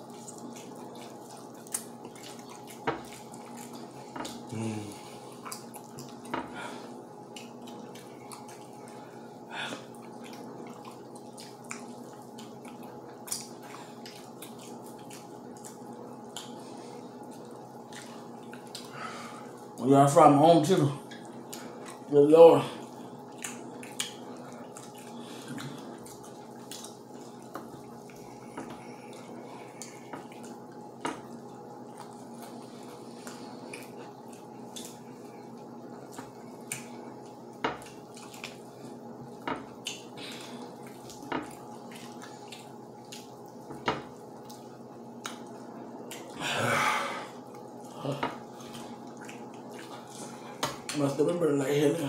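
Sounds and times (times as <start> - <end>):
background hum: 0.0 - 52.0
wet eating clicks and lip smacks: 0.2 - 4.5, 5.3 - 6.3, 7.3 - 9.0, 9.8 - 16.6, 17.3 - 18.9, 23.3 - 28.2, 33.2 - 35.0, 36.0 - 38.6, 39.3 - 43.4, 44.4 - 46.4, 48.5 - 51.0.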